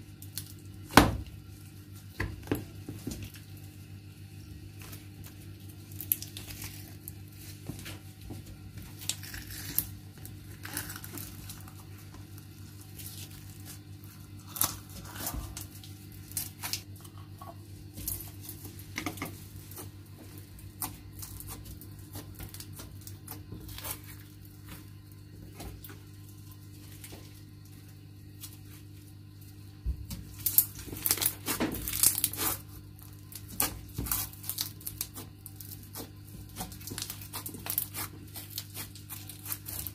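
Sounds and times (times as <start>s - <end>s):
steady low hum: 0.0s - 39.9s
slime crackling and popping: 30.4s - 39.9s.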